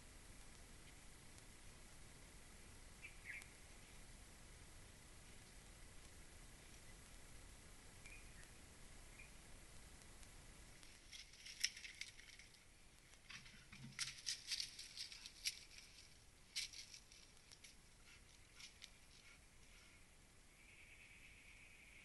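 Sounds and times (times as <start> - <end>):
clicks on rock: 10.8 - 17.8.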